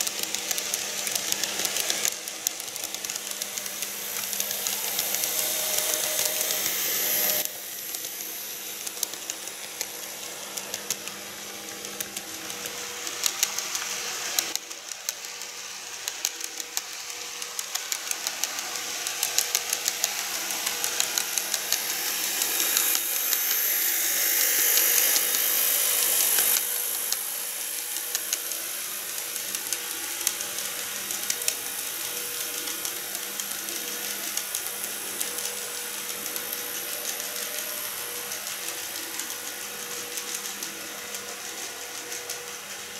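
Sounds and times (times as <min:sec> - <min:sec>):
wheels clicking over rail joints: 0:00.0 - 0:23.4
model train motor whirring: 0:00.0 - 0:42.9.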